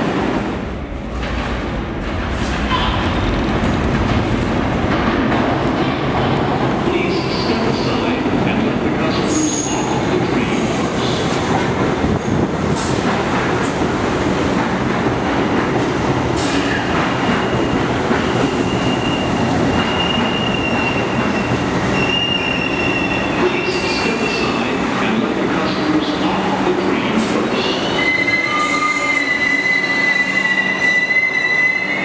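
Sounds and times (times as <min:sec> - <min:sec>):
subway train wheels rumbling: 0:00.0 - 0:32.0
high train squeal: 0:09.1 - 0:10.0, 0:16.4 - 0:24.6, 0:27.6 - 0:32.0.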